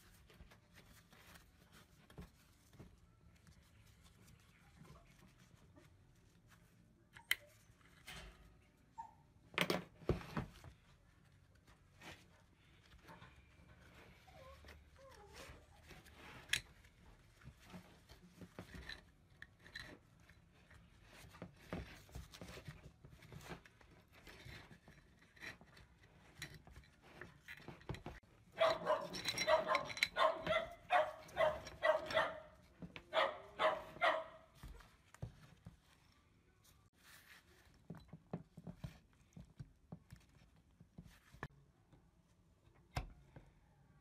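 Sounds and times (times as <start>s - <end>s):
metal parts clicking and scraping: 24.1s - 30.5s
dog barking: 28.6s - 34.5s.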